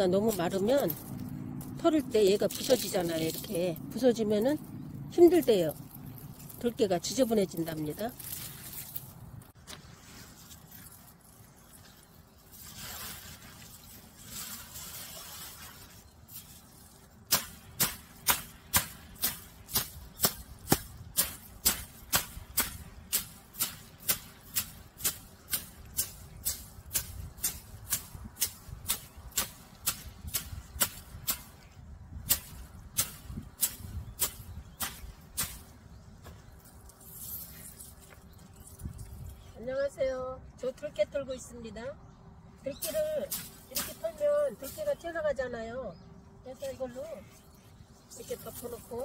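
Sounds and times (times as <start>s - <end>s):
dry plants rustling: 0.0s - 40.0s, 42.6s - 45.6s, 46.2s - 49.0s
stick striking dried plants: 17.2s - 36.4s, 42.8s - 45.1s.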